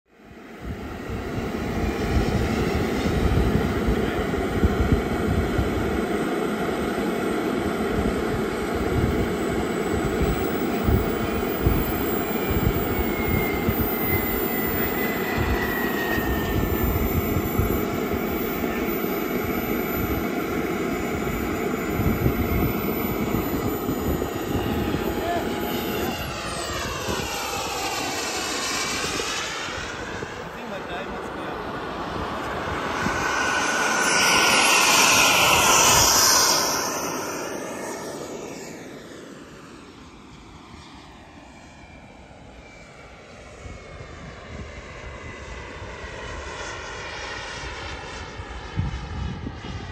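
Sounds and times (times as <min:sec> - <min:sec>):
model jet turbine running: 0:00.2 - 0:49.9
wind buffeting microphone: 0:00.6 - 0:06.2, 0:07.8 - 0:38.2, 0:48.2 - 0:49.9.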